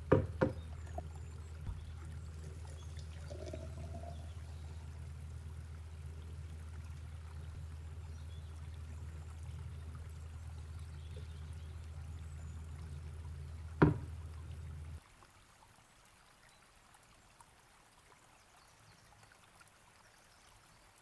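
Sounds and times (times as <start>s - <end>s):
low hum: 0.0s - 15.0s
juice pouring into glass jar: 1.7s - 5.6s.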